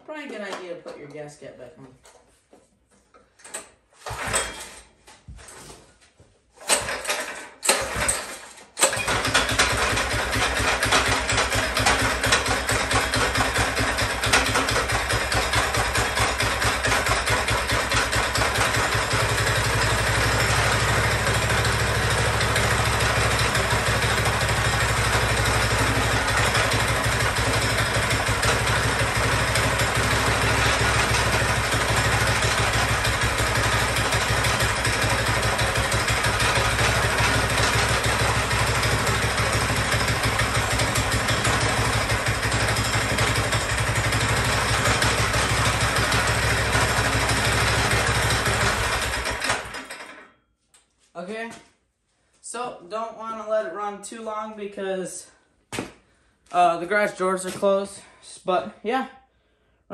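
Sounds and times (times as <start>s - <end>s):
small engine running: 6.7s - 50.2s.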